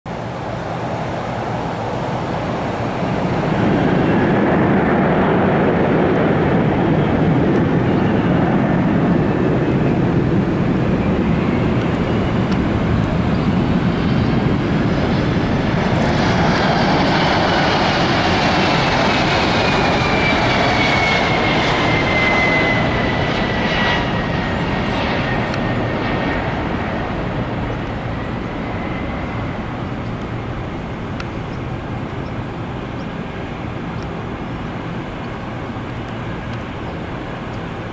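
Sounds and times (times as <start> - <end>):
jet airliner passing with whine: 0.1 - 37.9.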